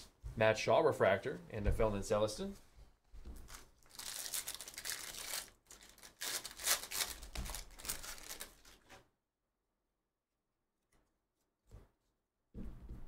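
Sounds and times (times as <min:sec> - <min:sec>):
foil wrapper tearing and crinkling: 0:03.5 - 0:08.9.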